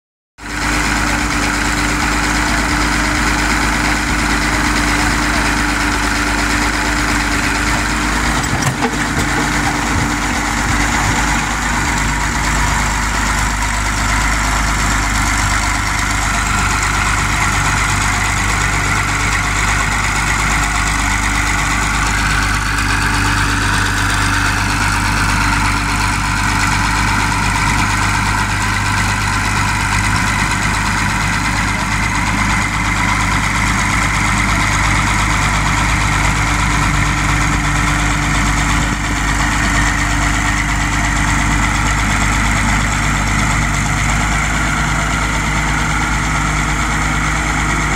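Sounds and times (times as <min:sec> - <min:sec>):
crawler diesel engine running: 0:00.4 - 0:47.9
metal clank: 0:07.7 - 0:11.5.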